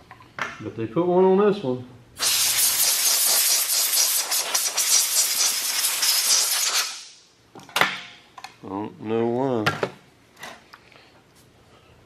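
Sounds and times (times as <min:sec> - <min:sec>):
air hose blow gun hissing: 0:02.2 - 0:07.2.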